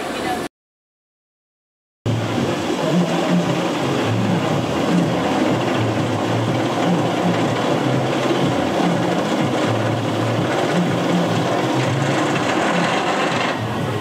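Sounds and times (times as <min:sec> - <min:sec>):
constant wash of noise: 0:02.1 - 0:14.0
low hum: 0:02.1 - 0:14.0
roller coaster clattering up lift hill: 0:02.3 - 0:14.0.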